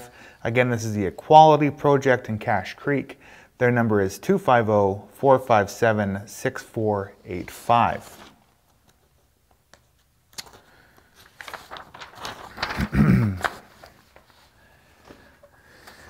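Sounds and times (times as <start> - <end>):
paper rustling: 7.2 - 16.0
man murmuring: 12.7 - 13.6.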